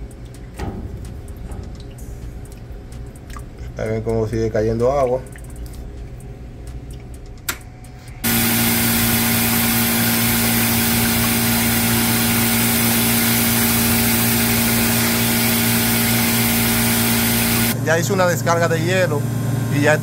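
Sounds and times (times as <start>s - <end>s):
ice machine humming: 7.9s - 20.0s.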